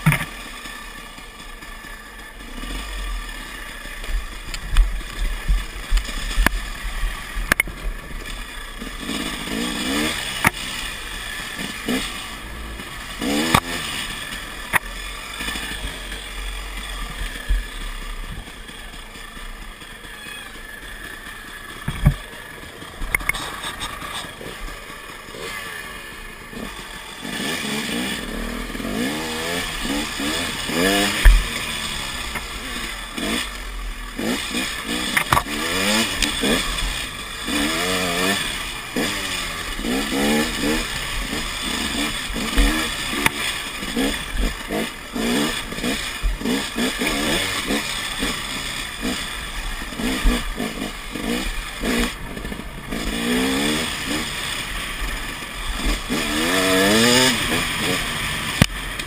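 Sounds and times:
bike knocks and rattles: 0.0s - 0.4s, 21.8s - 22.4s
dirt bike engine revving: 0.0s - 59.0s.

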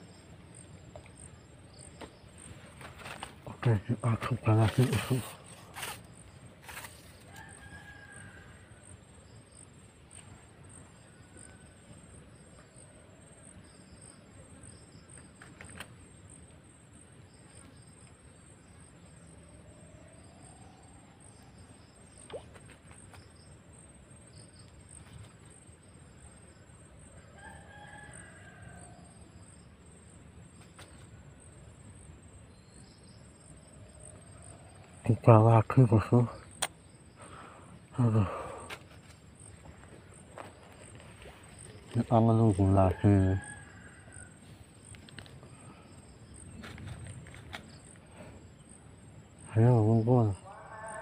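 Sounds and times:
high insect drone: 0.0s - 51.0s
faint rooster crowing: 6.8s - 9.0s, 27.1s - 29.4s, 42.6s - 44.9s, 50.4s - 51.0s.

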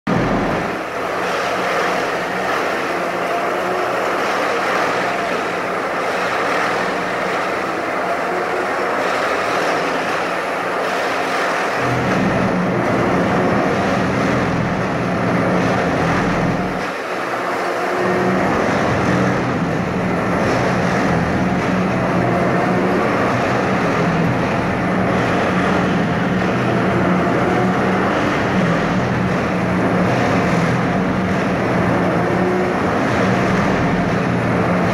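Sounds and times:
deep hum: 0.0s - 1.3s, 11.8s - 16.8s, 17.9s - 34.9s
track tamping machine din: 0.1s - 34.9s.

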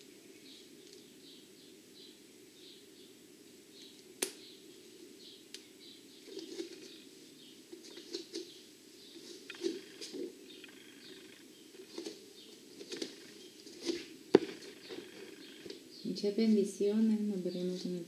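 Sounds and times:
small birds chirping: 0.0s - 18.0s
steady low hum: 0.0s - 18.0s
soft bumps: 12.8s - 15.8s.

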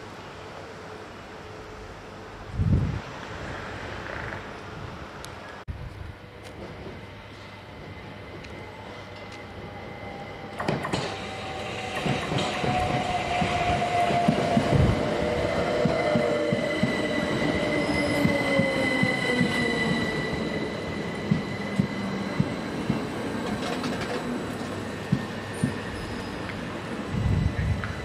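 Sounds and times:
wheels clicking over rail joints: 21.3s - 26.6s.

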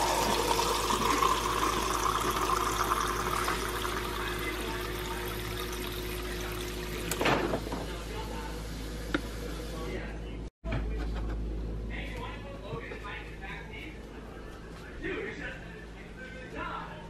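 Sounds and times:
water pouring into cup of ice: 0.0s - 7.1s
faint hum: 0.0s - 17.0s.

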